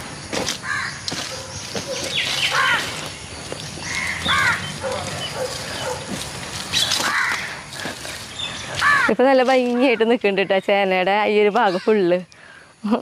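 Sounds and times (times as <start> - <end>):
crow cawing: 0.6 - 1.0, 2.5 - 3.0, 3.8 - 4.8, 6.9 - 7.8, 8.8 - 9.1.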